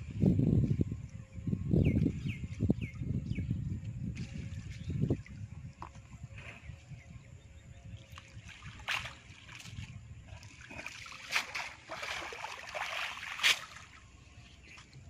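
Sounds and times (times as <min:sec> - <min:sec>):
water splashing and sloshing: 0:02.0 - 0:07.0, 0:07.9 - 0:15.0.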